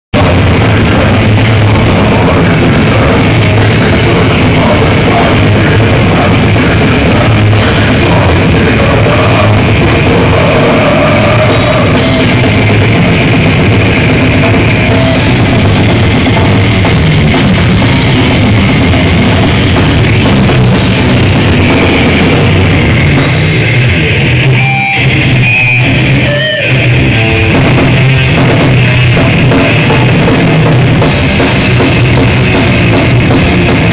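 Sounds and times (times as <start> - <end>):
death metal band playing live: 0.1 - 33.9.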